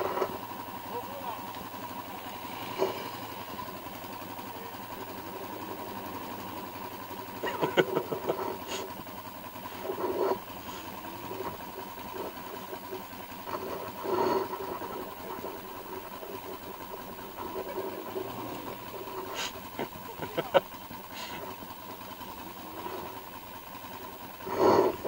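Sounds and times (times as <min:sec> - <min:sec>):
vehicle engine humming: 0:00.0 - 0:25.0.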